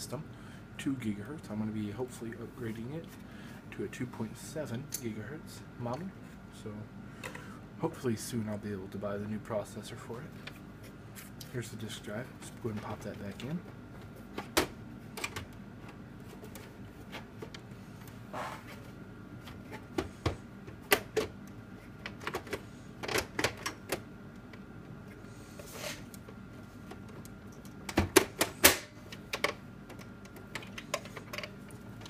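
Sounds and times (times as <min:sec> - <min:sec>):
clicks and knocks of metal and plastic: 0:12.8 - 0:17.6, 0:22.0 - 0:24.6, 0:26.2 - 0:32.0.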